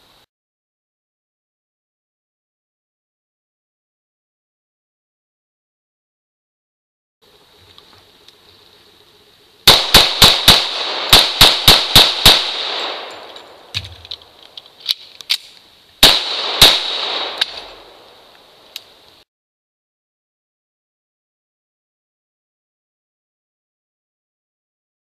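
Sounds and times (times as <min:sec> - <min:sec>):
rapid gunshots with echo: 0:09.7 - 0:13.2, 0:16.0 - 0:17.5.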